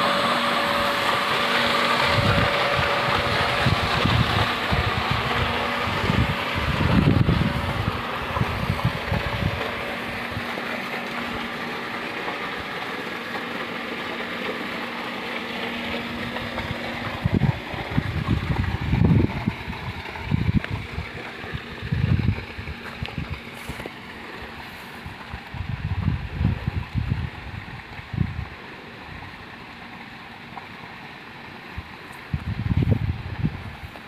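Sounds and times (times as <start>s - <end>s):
broad rushing noise: 0.0s - 27.2s
machine humming: 0.0s - 34.0s
wind buffeting microphone: 0.7s - 11.4s, 16.0s - 23.8s, 25.0s - 28.6s, 31.8s - 33.9s.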